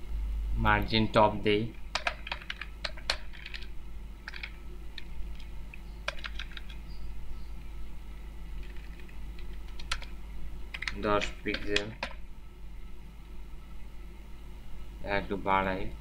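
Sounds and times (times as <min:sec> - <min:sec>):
steady low hum: 0:00.0 - 0:16.0
keyboard keys clicking: 0:01.9 - 0:03.7, 0:04.3 - 0:06.8, 0:08.6 - 0:12.2.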